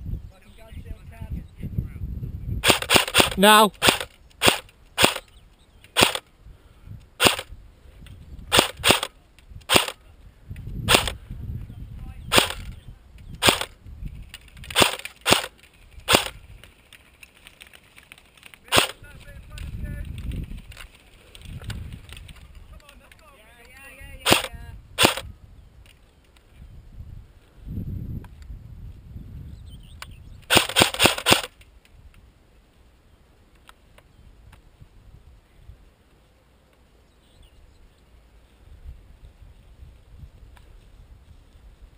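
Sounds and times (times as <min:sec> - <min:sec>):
airsoft gun shots: 0:02.6 - 0:05.3, 0:05.9 - 0:06.2, 0:07.2 - 0:07.5, 0:08.5 - 0:09.1, 0:09.7 - 0:10.0, 0:10.9 - 0:11.2, 0:12.3 - 0:12.7, 0:13.4 - 0:13.7, 0:14.7 - 0:15.5, 0:16.1 - 0:16.4, 0:18.7 - 0:19.0, 0:24.2 - 0:25.3, 0:30.5 - 0:31.6
handling rustle: 0:14.0 - 0:24.5.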